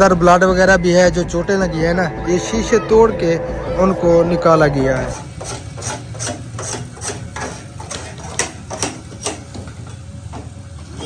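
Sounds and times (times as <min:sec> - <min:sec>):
steady low hum: 0:00.0 - 0:06.6
sharp irregular clicks and knocks: 0:06.2 - 0:10.6.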